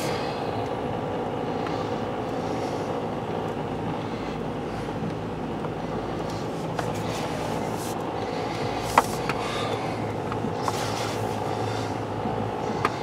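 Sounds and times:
car engine hum inside cabin: 0.0 - 13.0.

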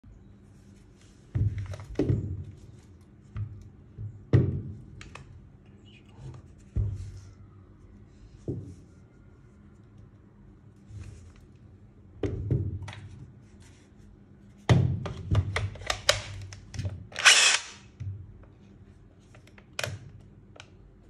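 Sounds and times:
light scraping and handling noise: 5.6 - 11.7, 13.1 - 14.6.

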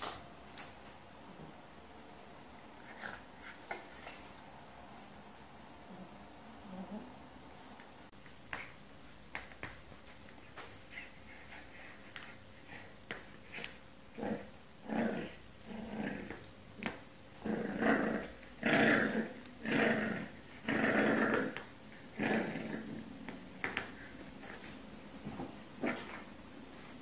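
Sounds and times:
puppy growling: 12.7 - 26.3.

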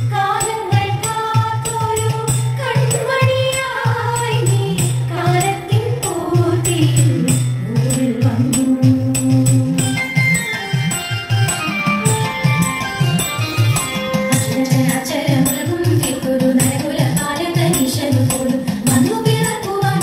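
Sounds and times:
music with percussive beat: 0.0 - 20.0
person singing a melody: 0.2 - 10.3.

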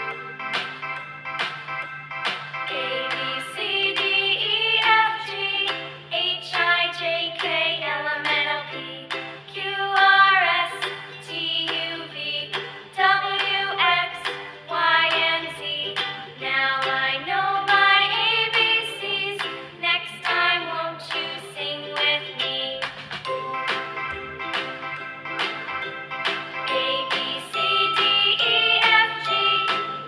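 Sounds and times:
high voice singing over a beat: 26.7 - 30.0.

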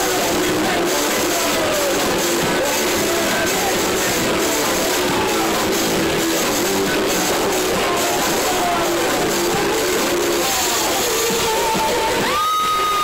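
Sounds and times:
loud live band music: 0.0 - 13.0.

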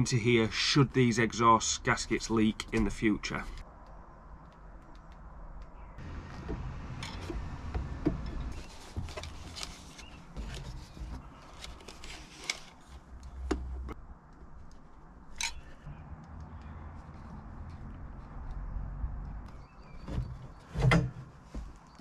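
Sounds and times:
handling knocks and rustling: 6.0 - 15.6, 19.5 - 22.0.

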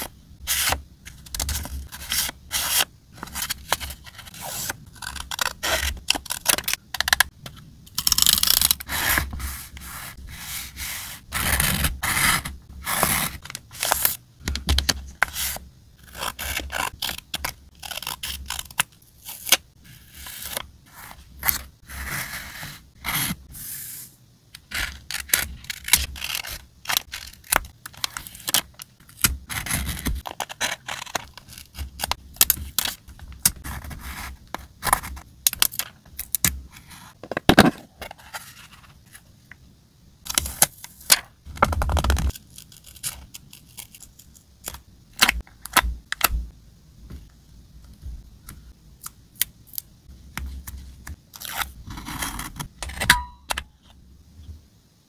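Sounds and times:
paper rubbing strokes: 8.9 - 14.0, 21.8 - 24.2.

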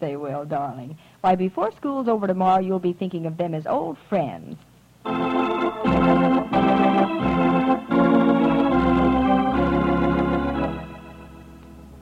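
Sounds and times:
organ chords: 5.0 - 12.0.

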